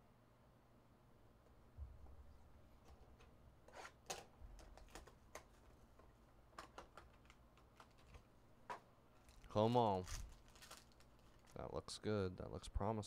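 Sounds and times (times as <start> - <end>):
foil card pack crinkling: 9.2 - 11.7.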